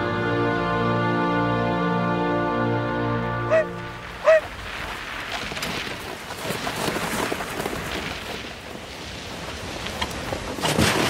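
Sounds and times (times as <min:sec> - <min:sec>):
reindeer running through snow: 0:04.2 - 0:11.0.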